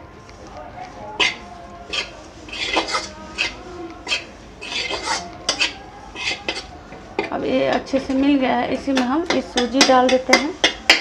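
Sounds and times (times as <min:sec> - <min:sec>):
metal spatula scraping pan: 0:01.2 - 0:08.2, 0:09.3 - 0:11.0.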